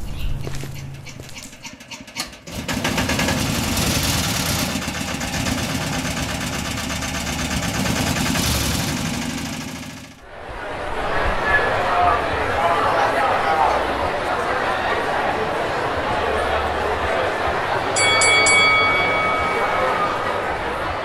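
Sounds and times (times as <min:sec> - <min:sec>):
machine rattling: 0:00.8 - 0:10.2.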